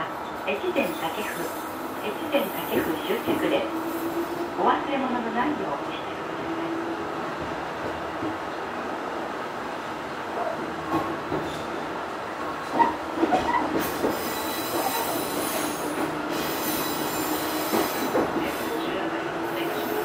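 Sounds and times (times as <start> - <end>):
electric railcar running: 0.0 - 20.0
wheel squeals: 13.4 - 18.8.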